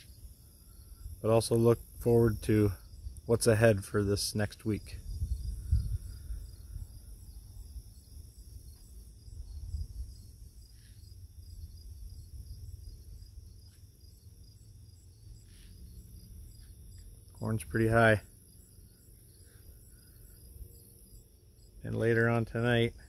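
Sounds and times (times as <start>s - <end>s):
crickets and insects chirping: 0.0s - 23.0s.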